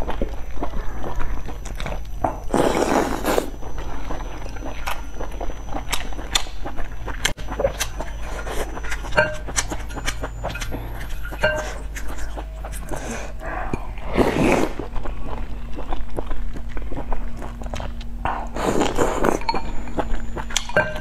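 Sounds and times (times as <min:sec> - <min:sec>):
woman slurping and chewing: 0:02.5 - 0:04.9, 0:07.1 - 0:14.9.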